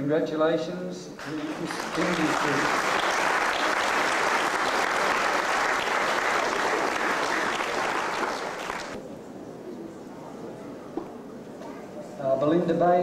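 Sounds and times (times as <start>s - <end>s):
audience applauding: 1.2s - 9.0s.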